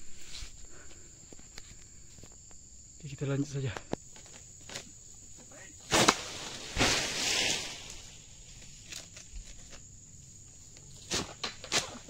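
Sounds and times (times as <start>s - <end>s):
leafy rushing of falling frond: 5.6s - 9.3s
sickle cracking through frond: 5.8s - 9.8s, 11.0s - 12.0s.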